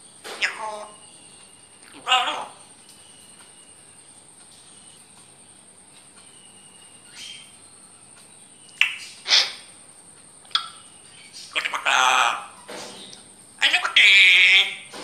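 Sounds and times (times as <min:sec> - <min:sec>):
parrot calling sharply: 0:00.4 - 0:01.0, 0:01.9 - 0:02.6, 0:08.8 - 0:09.7, 0:11.5 - 0:12.6, 0:13.6 - 0:14.9.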